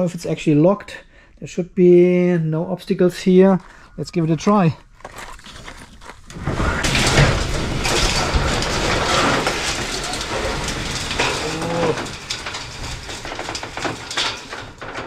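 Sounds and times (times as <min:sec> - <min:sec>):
metal roller door rattling open: 0:06.3 - 0:15.0.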